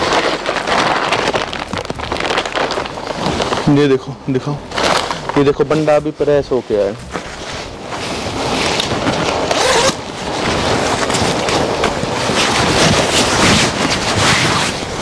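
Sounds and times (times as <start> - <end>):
nylon jacket rustling: 0.0 - 15.0.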